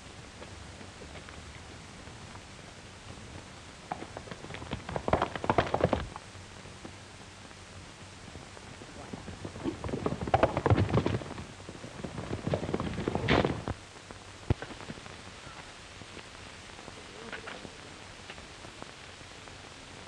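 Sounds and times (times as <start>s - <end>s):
steady hiss: 0.0s - 20.0s
horse hoofbeats on dirt: 3.1s - 7.0s, 8.6s - 13.8s.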